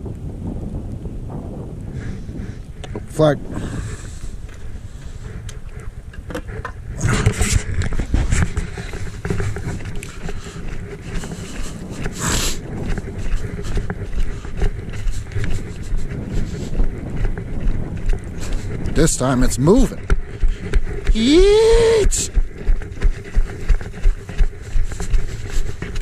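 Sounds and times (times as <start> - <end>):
footsteps on ice: 7.9 - 26.0.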